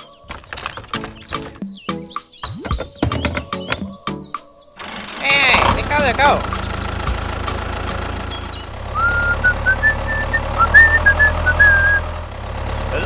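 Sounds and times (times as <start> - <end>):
small tractor engine drone: 4.8 - 13.0.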